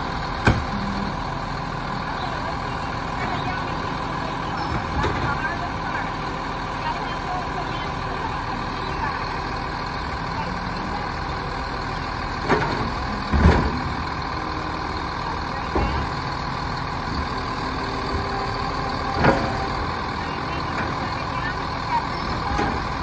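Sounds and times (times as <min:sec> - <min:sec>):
garbage truck running: 0:00.0 - 0:23.0
clanks and thumps of arm and cart: 0:04.5 - 0:05.6, 0:12.4 - 0:14.2.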